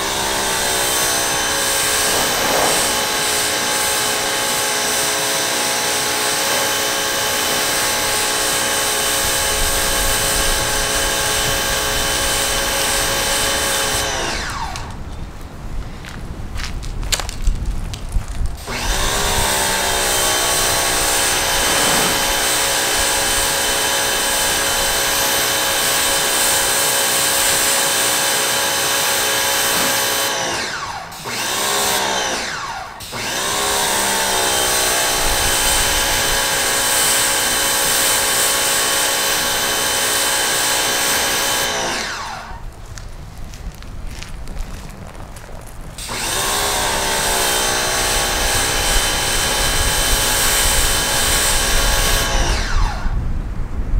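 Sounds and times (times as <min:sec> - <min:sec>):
water spray hissing: 0:00.0 - 0:14.0, 0:20.4 - 0:30.3
pressure washer motor: 0:00.0 - 0:15.0, 0:18.6 - 0:42.7, 0:46.0 - 0:53.2.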